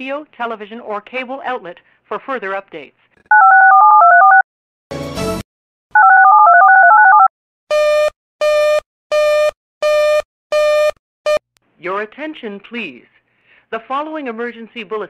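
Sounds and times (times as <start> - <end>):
touch-tone dialing tones: 3.3 - 4.4, 6.0 - 7.3.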